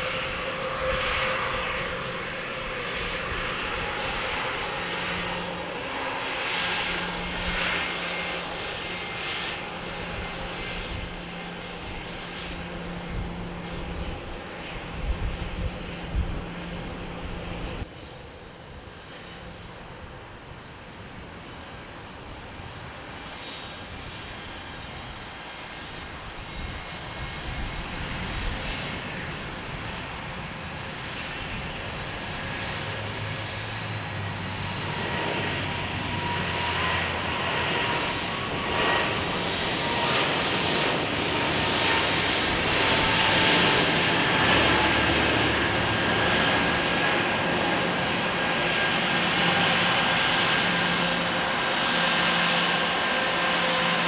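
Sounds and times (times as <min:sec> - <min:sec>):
jet engines roaring at takeoff: 0:00.0 - 0:54.0.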